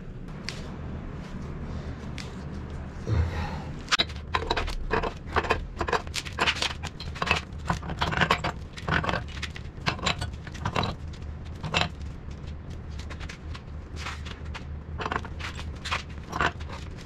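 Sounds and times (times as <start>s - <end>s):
steady low hum: 0.0s - 17.0s
wrench clicking and scraping on metal: 4.0s - 11.0s.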